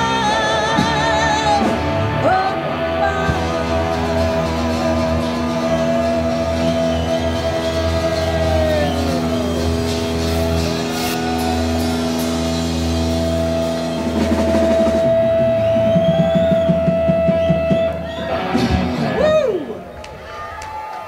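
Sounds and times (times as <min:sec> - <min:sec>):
rock band playing: 0:00.0 - 0:20.1
drum and cymbal hits: 0:03.2 - 0:19.5.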